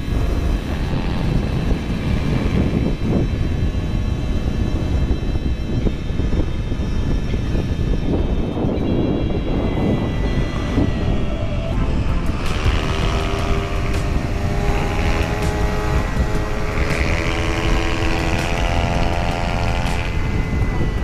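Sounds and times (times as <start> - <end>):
motorcycle engine under throttle: 0.0 - 6.0, 11.7 - 21.0
wind buffeting microphone: 0.0 - 21.0.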